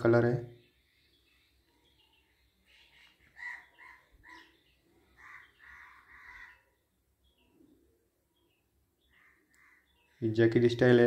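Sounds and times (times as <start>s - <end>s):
bird calling: 0.8s - 7.8s, 8.4s - 10.2s.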